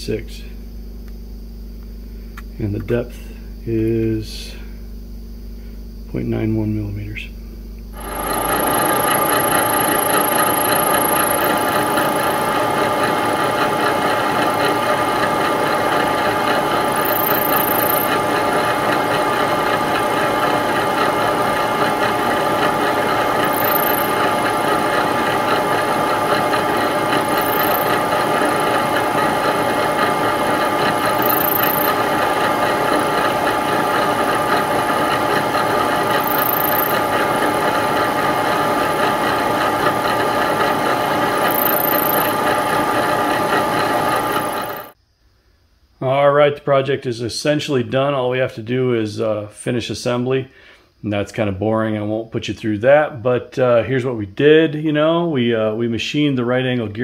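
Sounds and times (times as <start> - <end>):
milling machine whine: 7.9 - 45.0.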